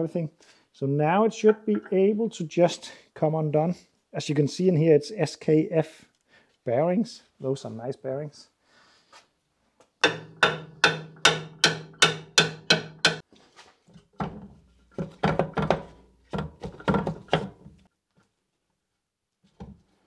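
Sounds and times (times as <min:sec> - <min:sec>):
hammer striking metal: 0:10.0 - 0:13.2.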